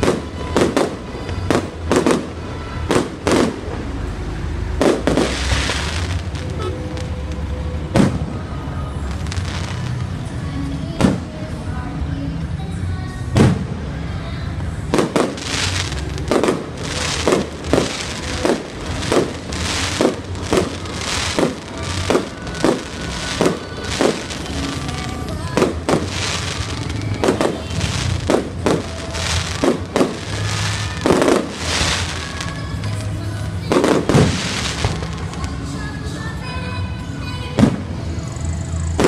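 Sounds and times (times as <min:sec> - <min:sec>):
fireworks bursting: 0:00.0 - 0:11.6, 0:13.3 - 0:14.0, 0:14.9 - 0:36.4, 0:37.3 - 0:39.0
music with steady bass: 0:14.8 - 0:39.0.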